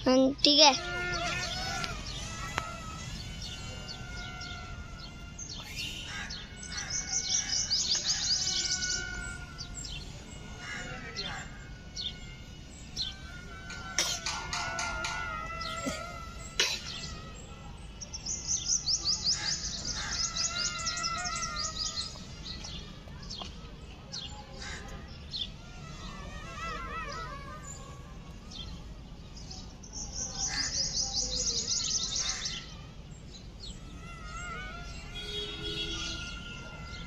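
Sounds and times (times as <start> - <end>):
rapid high bird trill: 0.0 - 22.6
warbling whistled bird calls: 0.6 - 22.7.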